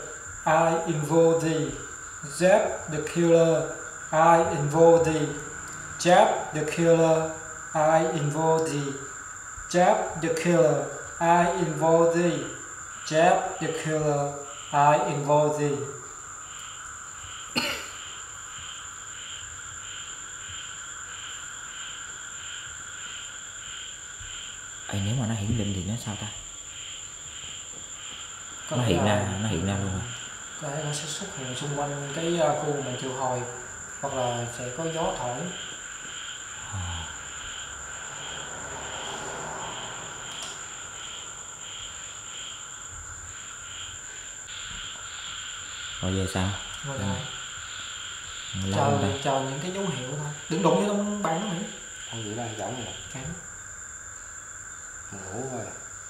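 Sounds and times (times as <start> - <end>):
continuous high whine: 0.0 - 56.0
insect chirping pulse: 0.0 - 56.0
insect high continuous trill: 0.0 - 56.0
person coughing: 17.6 - 18.0.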